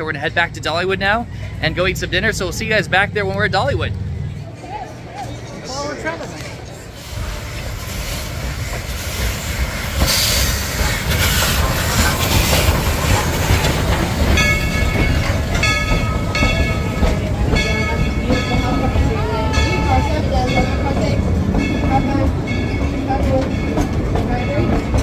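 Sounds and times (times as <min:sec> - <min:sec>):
train rumbling on rail track: 0:00.0 - 0:05.5, 0:06.1 - 0:25.0
pitched train toots: 0:06.9 - 0:25.0.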